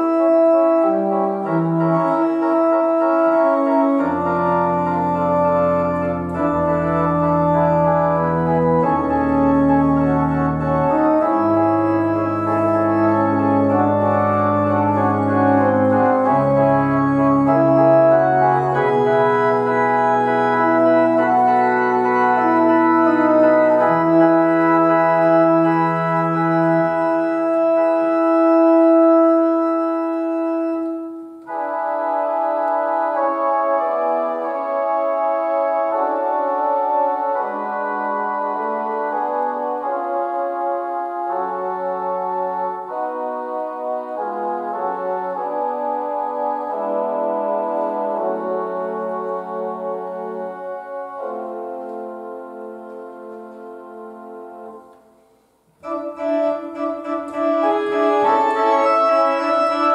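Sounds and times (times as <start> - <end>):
deep organ pedal bass notes: 0.0 - 55.0, 55.8 - 59.9
church organ chords: 0.0 - 59.9.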